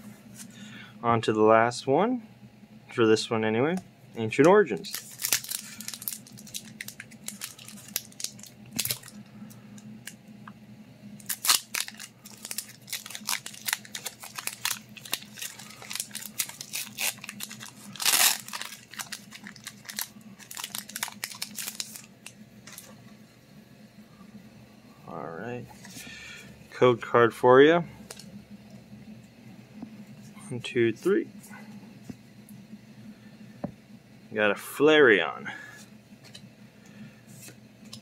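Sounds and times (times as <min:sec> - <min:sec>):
foil wrapper crinkling: 0:04.8 - 0:09.2, 0:11.2 - 0:22.9
foil wrapper ripping: 0:04.8 - 0:09.2, 0:11.2 - 0:22.9.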